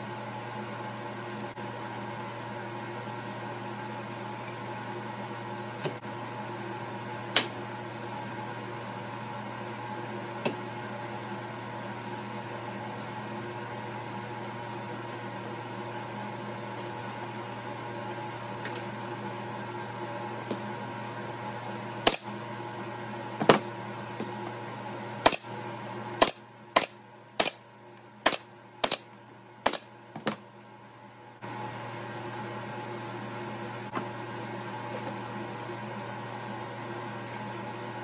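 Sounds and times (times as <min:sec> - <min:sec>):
steady hum: 0:00.0 - 0:38.0
nail gun shots into plywood: 0:26.2 - 0:27.6, 0:28.2 - 0:29.1, 0:29.7 - 0:29.9.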